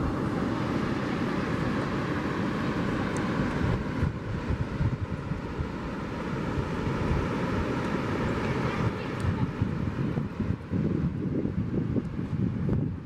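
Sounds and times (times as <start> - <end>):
wind buffeting microphone: 3.4 - 13.0.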